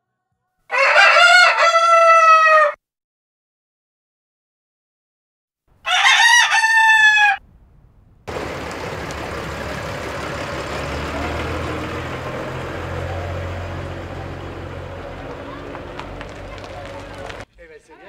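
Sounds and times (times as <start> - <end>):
rooster crowing: 0.7 - 2.8, 5.8 - 7.4
tractor diesel engine running: 8.3 - 17.5.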